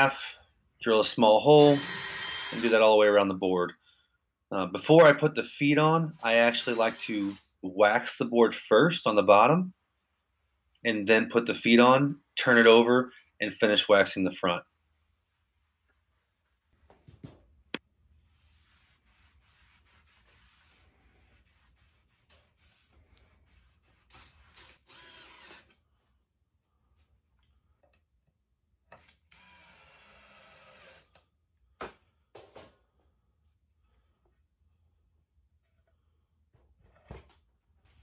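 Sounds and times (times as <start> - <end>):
cordless drill running: 1.6 - 2.7, 24.5 - 25.8, 29.0 - 31.1
wax pad rubbing on wood: 18.2 - 24.5.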